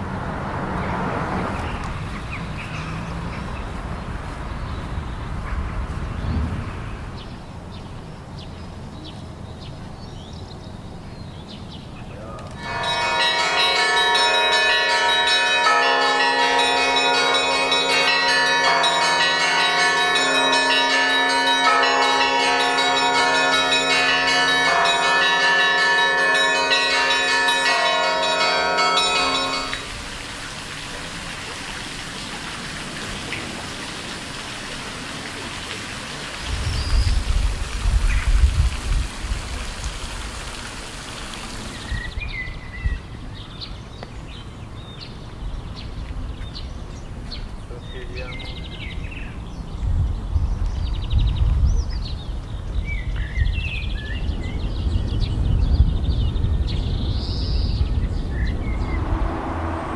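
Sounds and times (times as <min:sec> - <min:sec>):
church bells ringing: 0:12.5 - 0:30.1.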